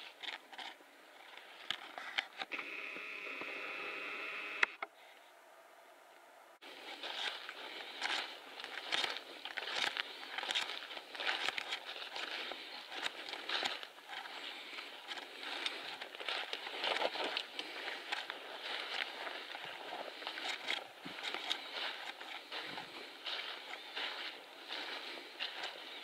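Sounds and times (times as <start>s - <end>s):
footsteps through dry grass and leaves: 6.6s - 26.0s.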